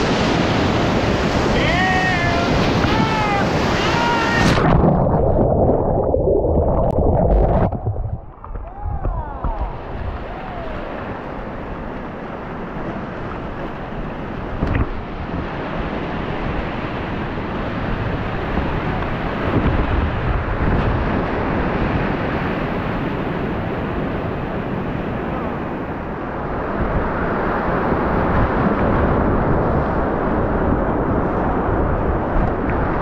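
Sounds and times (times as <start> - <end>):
whitewater rushing: 0.0 - 12.7
wind buffeting microphone: 0.0 - 33.0.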